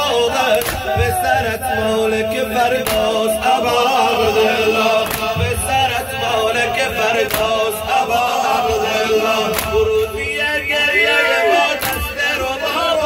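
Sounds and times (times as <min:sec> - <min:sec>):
crowd of men chanting: 0:00.0 - 0:13.0
chest-beating slaps: 0:00.5 - 0:01.0, 0:02.8 - 0:03.2, 0:05.0 - 0:05.4, 0:07.2 - 0:07.6, 0:09.5 - 0:09.8, 0:11.8 - 0:12.2.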